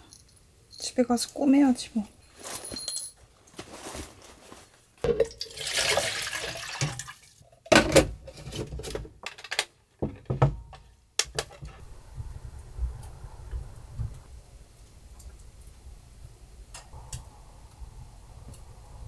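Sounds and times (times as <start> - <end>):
water pouring into plastic tank: 5.0 - 7.8.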